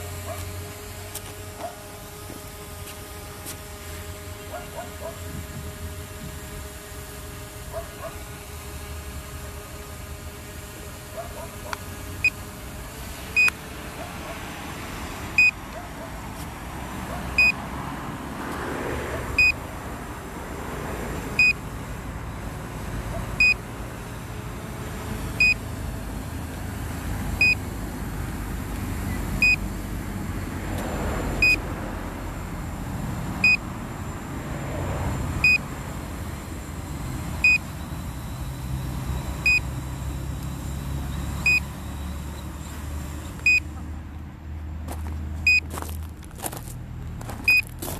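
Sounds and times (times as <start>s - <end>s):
drone motors and propellers: 0.0s - 47.9s.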